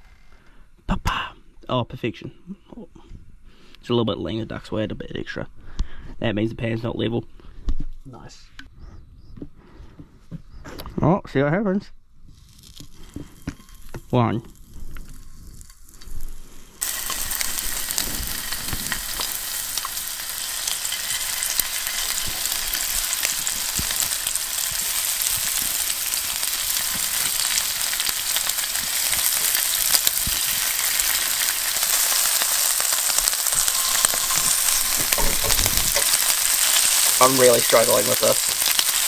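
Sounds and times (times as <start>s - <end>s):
meat sizzling in a frying pan: 12.4s - 39.0s.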